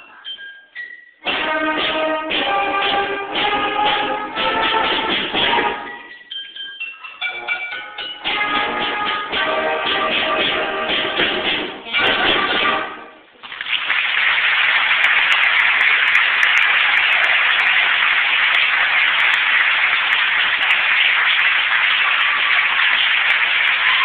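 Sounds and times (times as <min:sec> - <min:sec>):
audience applauding: 0:13.4 - 0:24.0.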